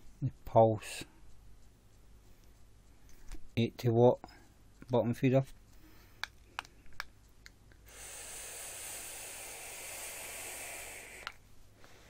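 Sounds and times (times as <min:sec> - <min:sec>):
airy hiss of vape draw: 0:07.8 - 0:11.4.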